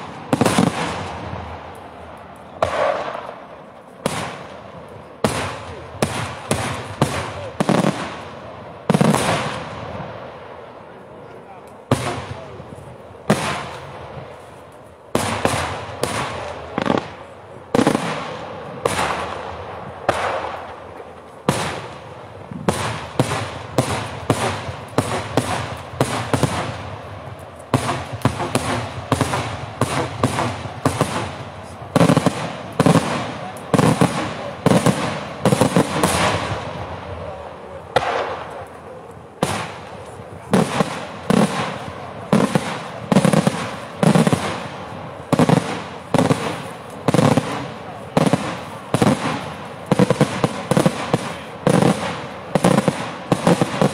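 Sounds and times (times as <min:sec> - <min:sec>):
firework shells bursting: 0:22.7 - 0:36.7.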